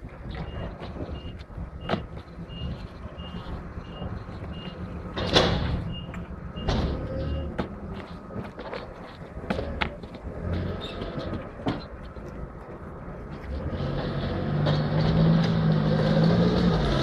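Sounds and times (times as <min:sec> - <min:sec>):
low engine rumble: 0:00.0 - 0:17.0
reversing alarm beeping: 0:00.4 - 0:04.9, 0:05.8 - 0:07.6.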